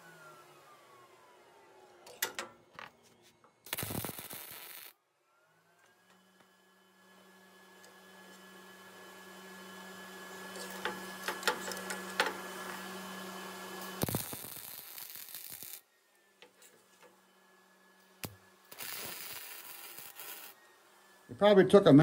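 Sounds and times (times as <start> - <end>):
welding arc crackling: 3.6 - 5.0, 13.8 - 15.8, 18.2 - 20.6.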